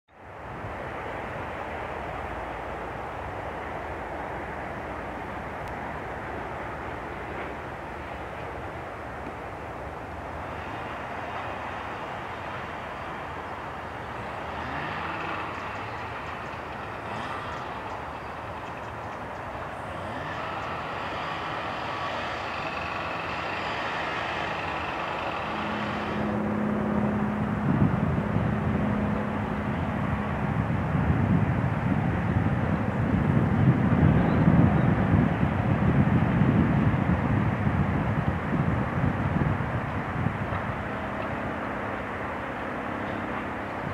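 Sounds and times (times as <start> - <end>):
steady hum: 0.2 - 34.6
helicopter flying past: 4.7 - 43.9.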